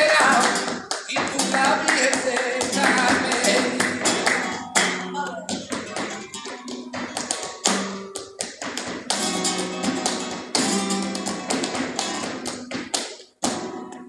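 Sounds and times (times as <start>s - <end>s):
acoustic guitar flamenco: 0.0s - 14.0s
rhythmic hand clapping: 0.0s - 14.0s.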